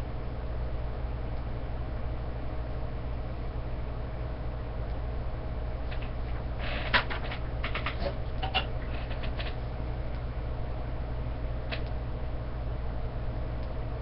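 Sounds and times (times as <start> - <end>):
steady low hum: 0.0 - 14.0
paper rustling: 5.9 - 9.6.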